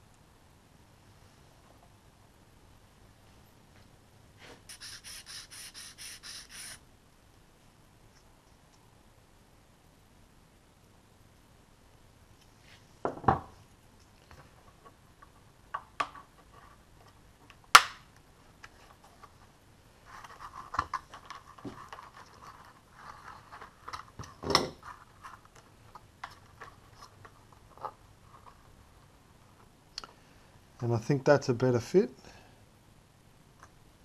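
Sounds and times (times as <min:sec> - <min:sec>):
plastic and foam rubbing: 0:04.7 - 0:06.8, 0:20.0 - 0:24.2.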